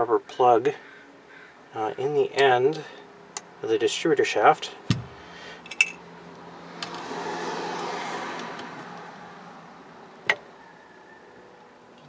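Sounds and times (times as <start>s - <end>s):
vehicle passing by: 5.0s - 11.6s
metal parts clicking: 5.6s - 6.0s.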